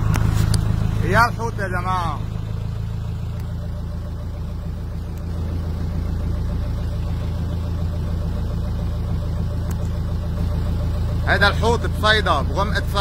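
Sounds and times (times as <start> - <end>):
boat engine running low hum: 0.0 - 13.0.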